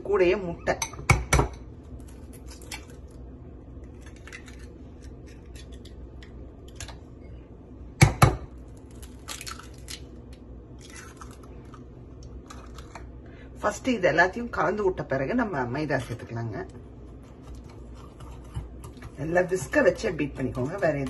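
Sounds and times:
eggs cracking against bowl: 8.0s - 13.1s.

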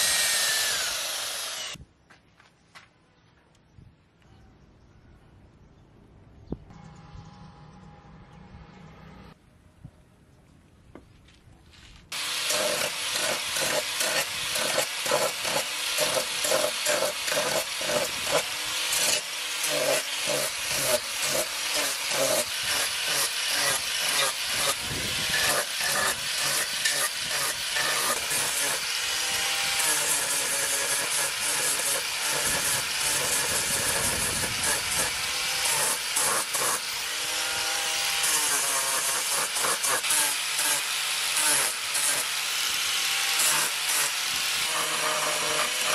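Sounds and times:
electric grinder sanding wood: 0.0s - 1.8s, 12.1s - 45.9s.

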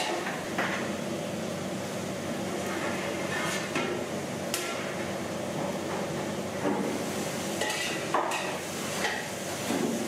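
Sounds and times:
kitchen background noise: 0.0s - 10.0s.

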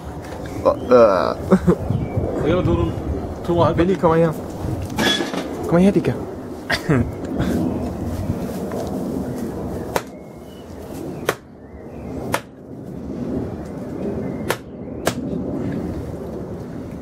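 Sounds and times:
hatchet chopping on stone: 12.3s - 12.5s.

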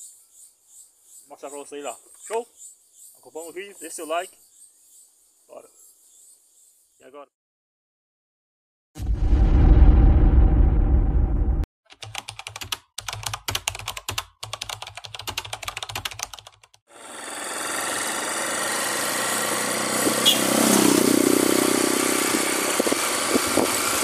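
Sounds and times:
keyboard typing clicks: 11.9s - 16.7s
vehicle engine running: 17.0s - 24.0s
wind noise: 22.3s - 24.0s.

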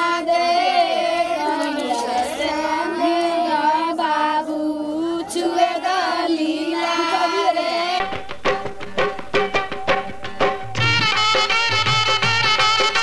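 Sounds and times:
music with quick beat: 8.0s - 13.0s.

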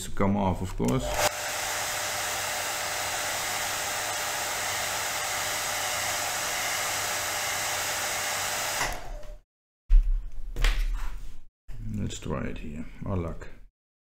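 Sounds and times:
hot-air blower running: 1.0s - 9.4s.

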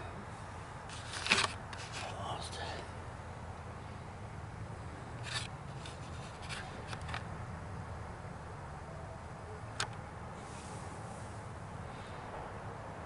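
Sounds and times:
camera handling clicks and rubs: 0.9s - 2.1s, 5.2s - 7.3s.

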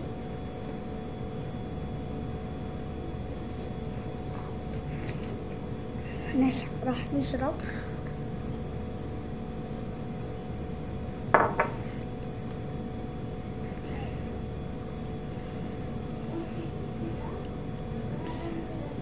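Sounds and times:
steady hum and hiss: 0.0s - 19.0s
glass clinking on table: 11.4s - 11.7s.

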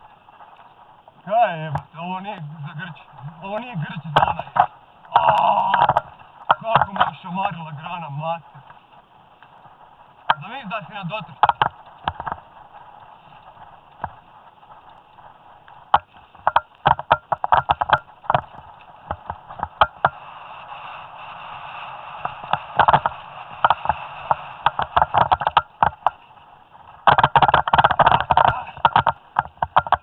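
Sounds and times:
bike rattles and knocks: 4.2s - 7.2s, 11.3s - 20.2s, 22.2s - 30.0s.

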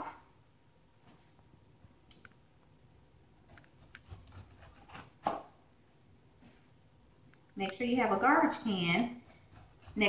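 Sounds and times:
knife scraping pineapple rind: 3.8s - 5.3s, 9.1s - 10.0s.

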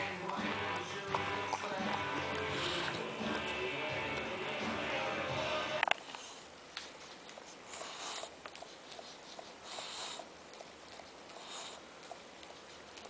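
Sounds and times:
puppy sniffing and snuffling: 0.0s - 5.3s, 6.0s - 13.0s.

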